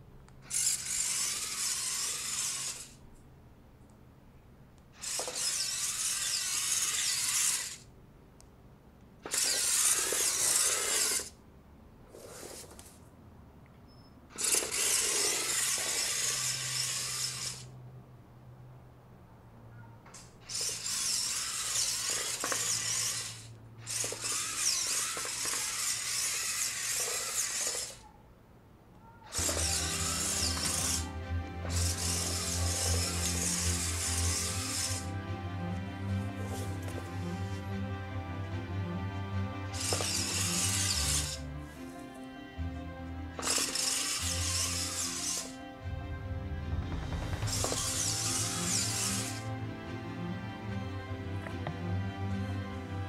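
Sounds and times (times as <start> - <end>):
robot car motors whirring: 0.4 - 3.0, 5.0 - 7.9, 9.2 - 11.4, 14.3 - 17.7, 20.2 - 28.0, 29.3 - 31.1, 31.7 - 35.1, 39.8 - 41.4, 43.4 - 45.6, 47.5 - 49.5.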